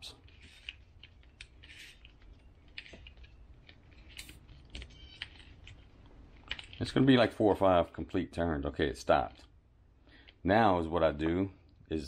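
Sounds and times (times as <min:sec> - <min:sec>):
plastic clicks and scrapes: 0:00.2 - 0:06.9.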